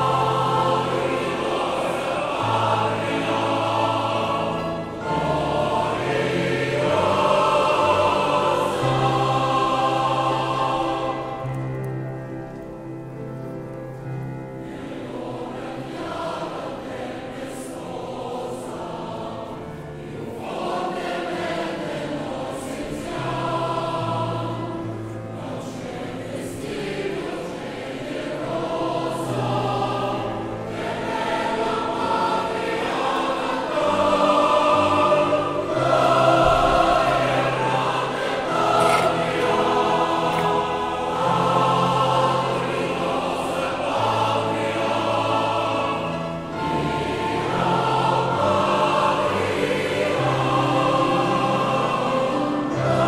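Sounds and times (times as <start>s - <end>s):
choir singing: 0.0s - 53.0s.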